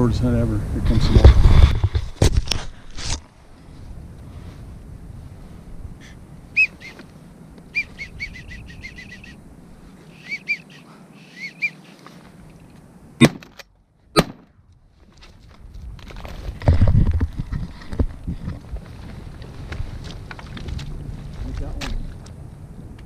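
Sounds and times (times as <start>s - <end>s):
high rising-and-falling whistles: 6.5s - 7.0s, 7.7s - 9.4s, 10.1s - 12.0s
shotgun shots: 13.2s - 13.5s, 14.2s - 14.5s.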